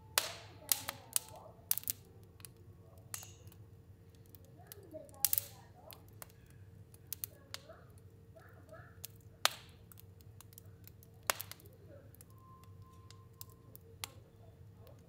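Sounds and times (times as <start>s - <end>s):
fire crackling and popping: 0.0s - 15.0s
low steady hum: 0.0s - 15.0s
faint thin whistle: 12.2s - 14.2s.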